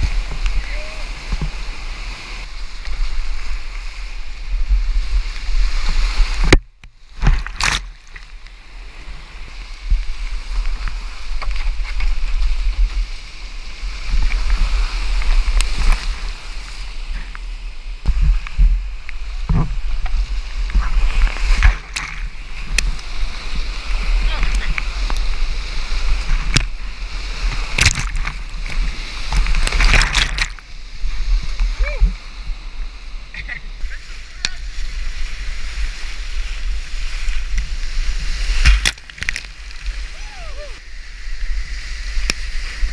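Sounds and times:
water splashing over microphone: 0:18.1 - 0:40.8.

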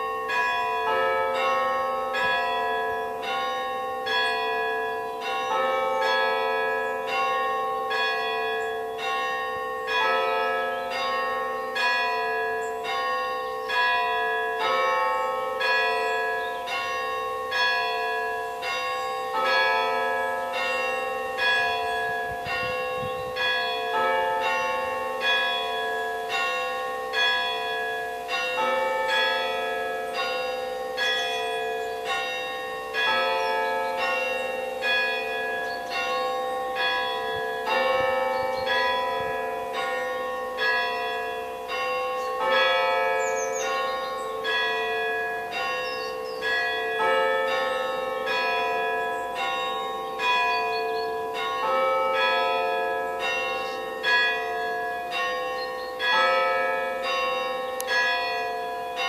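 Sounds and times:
church bells ringing: 0:00.0 - 0:59.0.

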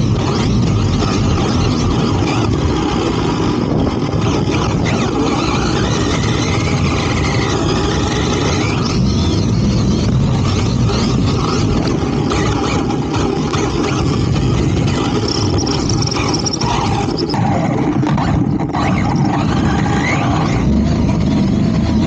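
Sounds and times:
electric motor whine: 0:00.0 - 0:22.0.

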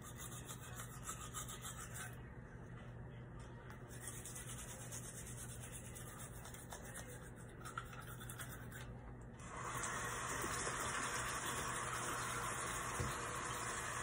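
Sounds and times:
toothbrush scrubbing teeth: 0:00.0 - 0:02.2, 0:03.9 - 0:09.0
steady low hum: 0:00.0 - 0:09.4.

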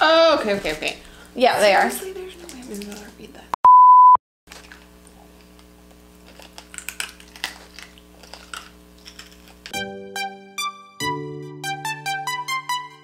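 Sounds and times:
loud steady bleep tone: 0:03.6 - 0:04.2.

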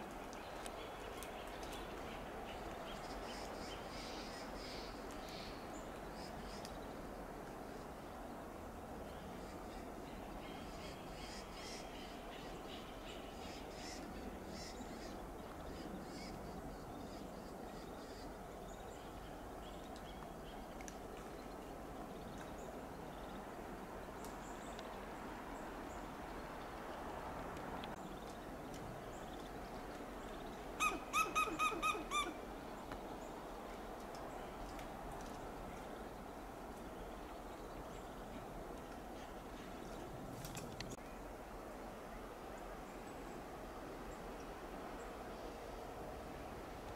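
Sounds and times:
background hiss: 0:00.0 - 0:46.9
squirrel alarm calls: 0:30.8 - 0:32.4.

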